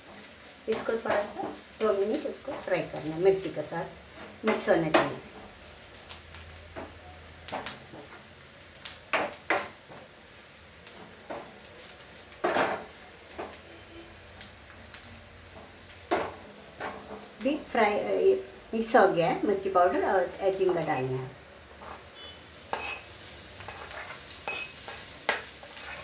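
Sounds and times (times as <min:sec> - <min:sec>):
faint steady sizzle: 0:00.0 - 0:26.0
spatula scraping frying pan: 0:21.8 - 0:26.0.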